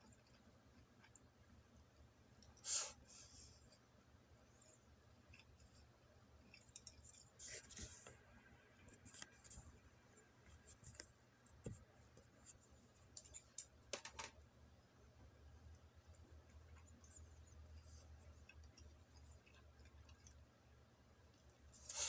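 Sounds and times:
person chewing: 0:05.3 - 0:07.4, 0:16.5 - 0:20.5
chopsticks clicking: 0:06.5 - 0:07.2.

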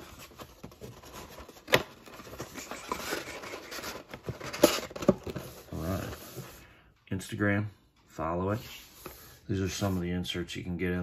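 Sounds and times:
cardboard scraping and rustling: 0:00.0 - 0:06.6.

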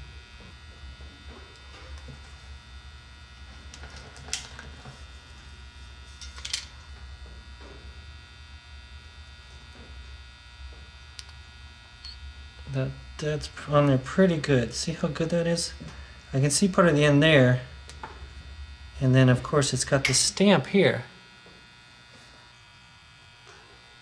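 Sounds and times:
electrical hum: 0:00.0 - 0:24.0.

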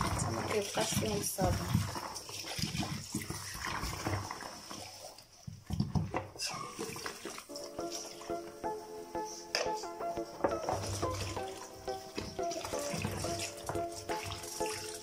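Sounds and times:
water splashing into a basin: 0:00.0 - 0:08.4, 0:10.6 - 0:15.0
tap water running: 0:00.0 - 0:15.0
music: 0:06.4 - 0:15.0.

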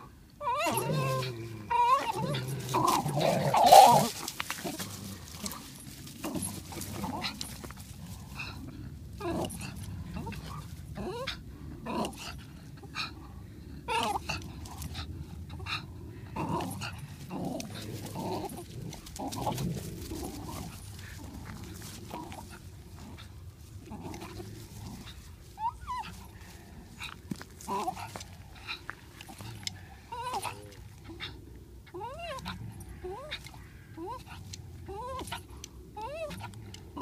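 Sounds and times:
dog whining: 0:00.0 - 0:04.1
dogs growling: 0:00.0 - 0:37.0.

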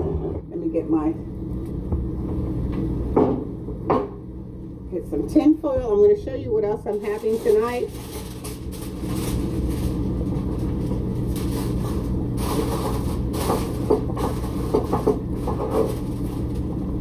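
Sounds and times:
water boiling in a pot: 0:06.6 - 0:17.0
kitchen items knocking: 0:12.4 - 0:16.2.

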